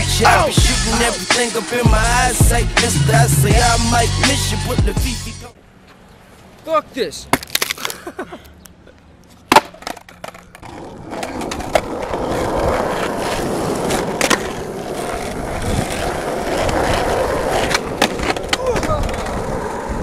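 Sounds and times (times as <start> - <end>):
skateboard wheels rolling: 8.9 - 20.0
skateboard clack: 9.4 - 20.0.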